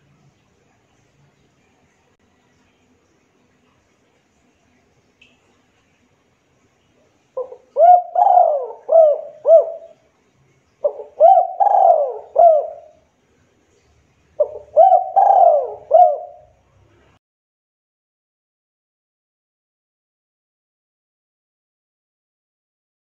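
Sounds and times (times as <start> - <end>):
dove cooing: 7.4 - 10.0, 10.8 - 13.0, 14.4 - 16.6.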